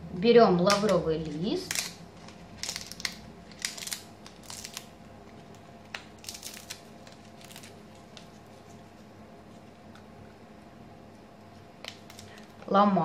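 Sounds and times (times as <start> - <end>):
dry leaves crackling: 2.6 - 4.9, 6.2 - 8.2.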